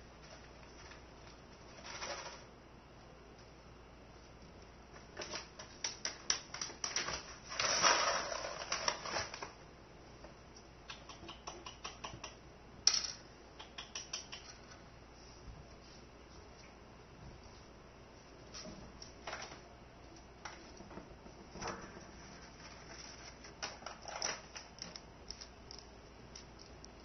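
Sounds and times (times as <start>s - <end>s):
gerbil scratching and clicking: 10.9s - 12.4s, 13.6s - 14.8s, 22.4s - 27.0s.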